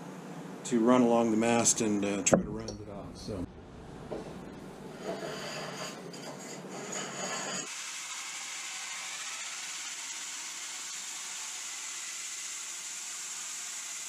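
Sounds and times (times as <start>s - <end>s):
drill spinning sanding belt: 6.9s - 14.0s.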